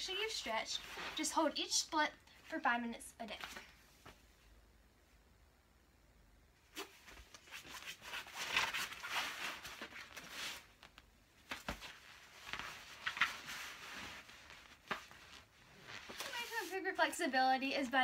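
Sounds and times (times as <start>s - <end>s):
rustling on foam mat: 0.0s - 1.6s, 6.7s - 17.3s.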